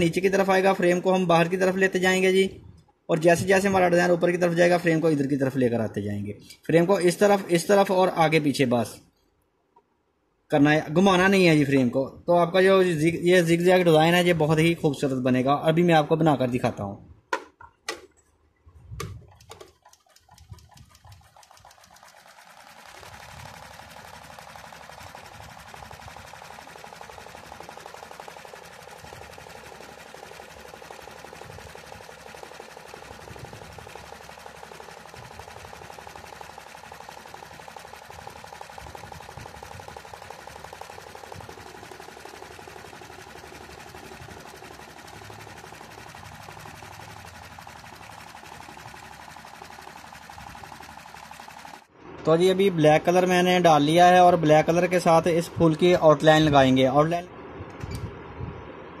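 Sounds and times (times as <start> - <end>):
sewing machine stitching: 17.6 - 51.9.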